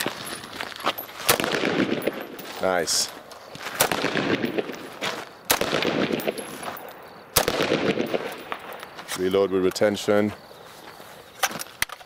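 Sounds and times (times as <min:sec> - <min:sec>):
rifle shots echoing: 0:01.2 - 0:03.1, 0:03.8 - 0:08.9.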